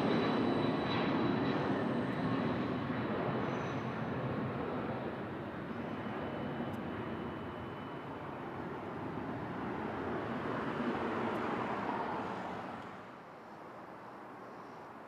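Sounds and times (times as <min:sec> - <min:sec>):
jet airliner engines passing: 0:00.0 - 0:13.2.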